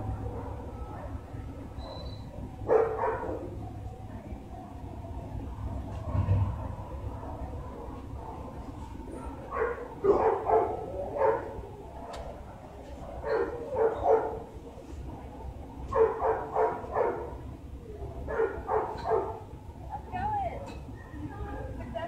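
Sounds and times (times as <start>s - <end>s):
dog barking: 1.8s - 3.6s, 9.2s - 11.6s, 13.1s - 14.5s, 15.9s - 17.4s, 18.3s - 19.5s.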